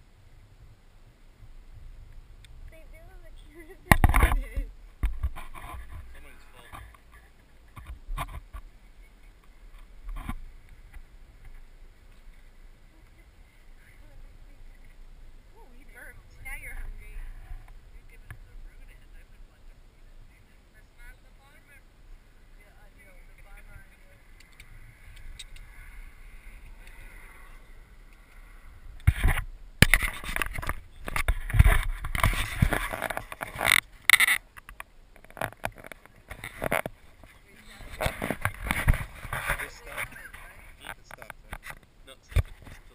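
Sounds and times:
camera handling noise: 29.0 - 37.0.

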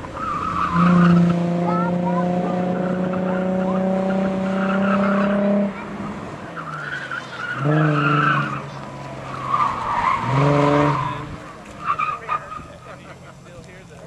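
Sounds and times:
car engine revving: 0.0 - 14.0
tyres squealing: 6.5 - 13.2.

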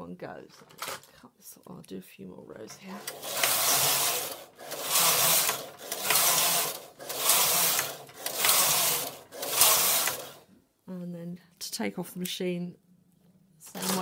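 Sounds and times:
knitting machine carriage sliding: 2.9 - 10.5, 13.7 - 14.0.

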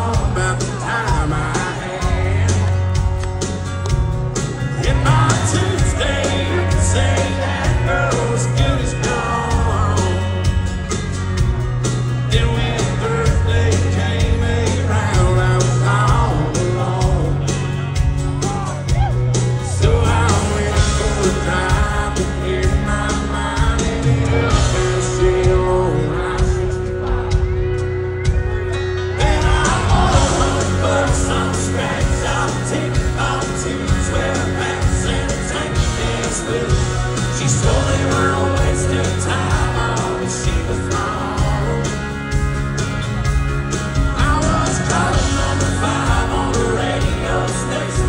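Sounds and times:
country band playing: 0.0 - 48.0
drums and cymbals beat: 0.0 - 48.0
person singing: 4.8 - 10.6, 12.3 - 17.8, 18.4 - 27.7, 28.8 - 42.3, 44.0 - 48.0.

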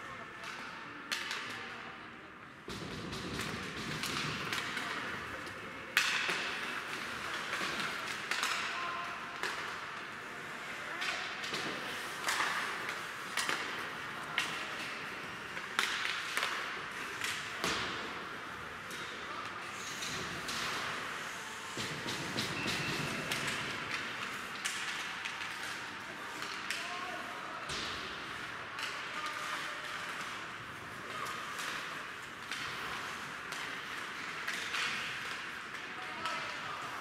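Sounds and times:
hockey sticks and puck clacking: 0.0 - 37.0.

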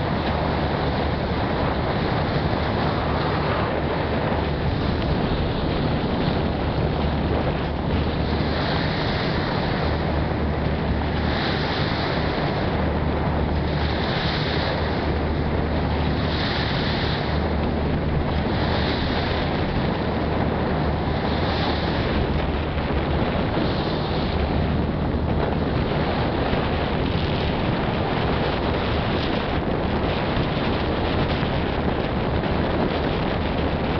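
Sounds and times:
ferry engine hum: 0.0 - 33.9
water rushing along hull: 0.0 - 33.9
wind buffeting microphone: 0.0 - 33.9.

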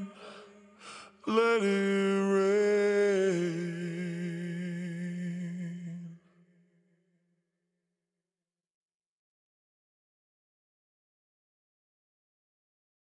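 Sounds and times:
man singing a long note: 0.0 - 6.3.

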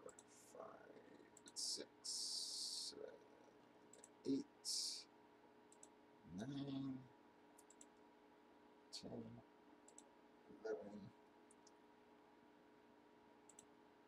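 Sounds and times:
faint mouse clicks: 1.2 - 1.6, 3.6 - 4.2, 5.7 - 6.0, 7.6 - 8.1, 9.8 - 10.2, 11.5 - 11.8, 13.5 - 13.8.

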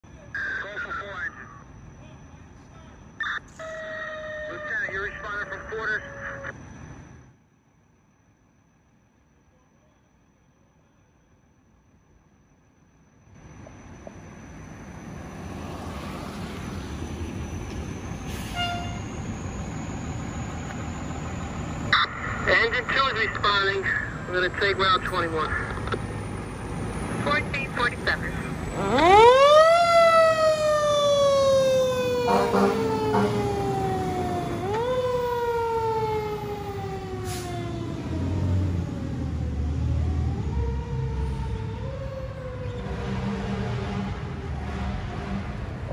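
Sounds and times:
fire engine diesel engine running: 13.3 - 42.5
short horn toot: 18.4 - 19.1, 32.3 - 33.4.

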